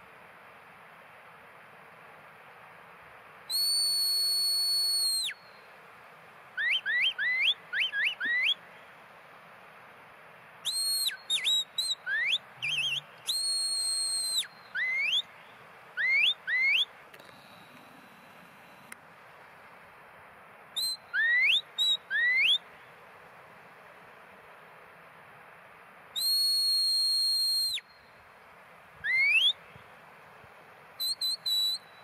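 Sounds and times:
shepherd's whistle commands: 3.5s - 5.4s, 6.6s - 8.6s, 10.7s - 15.3s, 16.0s - 16.9s, 20.8s - 22.6s, 26.2s - 28.0s, 29.0s - 29.6s, 31.0s - 32.0s.

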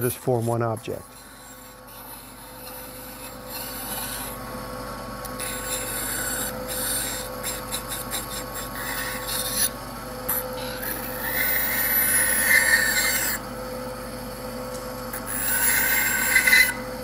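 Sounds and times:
saw blade rasping through wood: 0.0s - 4.4s, 5.3s - 9.7s, 10.6s - 13.4s, 15.2s - 16.8s
bandsaw humming: 0.0s - 4.6s, 5.2s - 13.5s, 15.1s - 17.0s.

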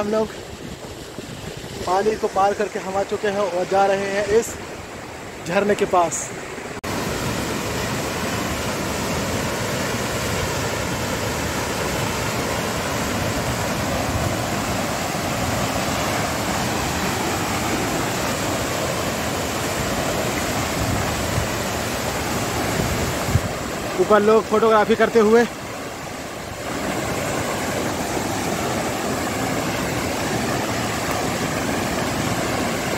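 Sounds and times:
waterfall rushing: 0.0s - 32.9s.

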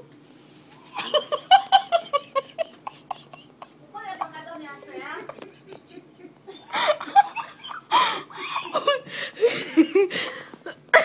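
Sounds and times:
people laughing: 0.9s - 10.3s.

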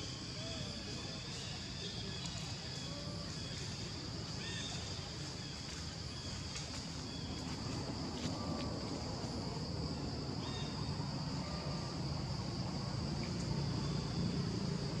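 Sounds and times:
insect chorus drone: 0.0s - 15.0s.

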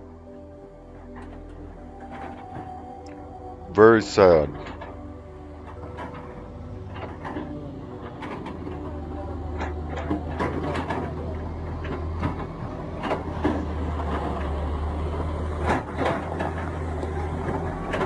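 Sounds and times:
excavator engine droning: 0.0s - 18.0s
scattered knocks: 5.6s - 18.0s.

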